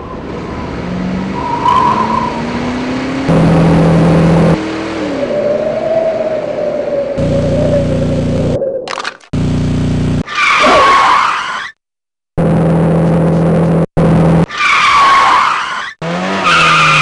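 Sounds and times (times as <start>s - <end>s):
engine drone: 0.0s - 10.2s.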